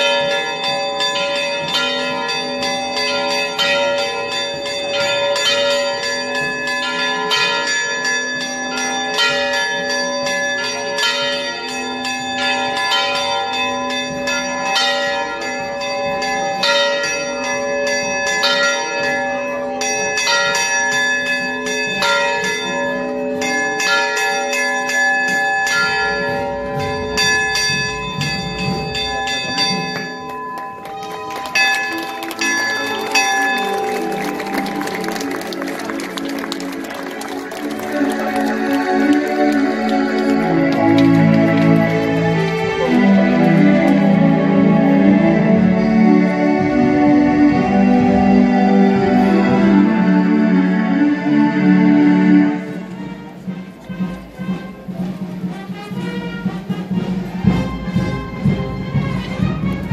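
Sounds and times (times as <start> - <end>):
church bells pealing: 0.0 - 59.9.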